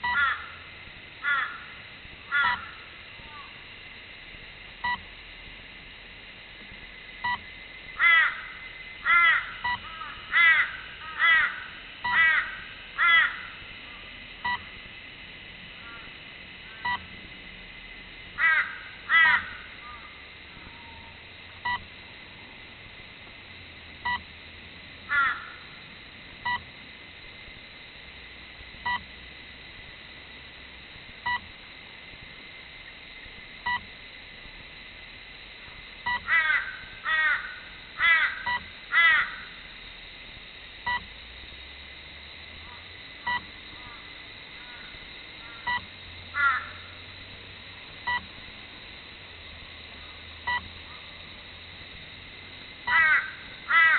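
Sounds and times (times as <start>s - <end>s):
crows cawing: 0.1s - 0.6s, 1.2s - 3.5s, 8.0s - 13.6s, 15.8s - 16.1s, 18.4s - 20.1s, 25.1s - 25.7s, 36.2s - 39.6s, 44.6s - 45.7s, 46.4s - 47.0s, 52.9s - 53.9s.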